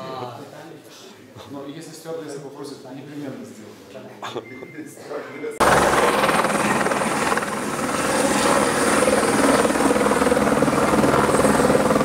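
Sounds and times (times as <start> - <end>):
helicopter rotor chopping: 5.6 - 12.0.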